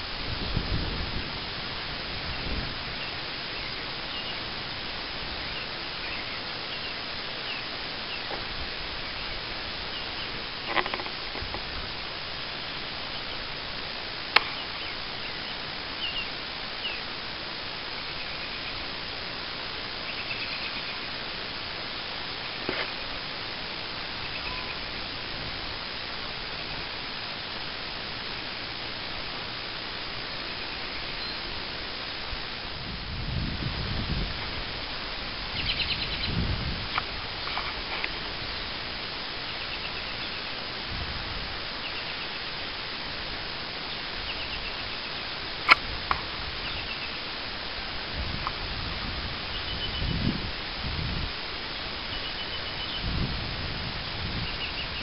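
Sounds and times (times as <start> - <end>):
background hiss: 0.0 - 55.0
faint high chirps: 24.2 - 25.1, 30.4 - 31.6.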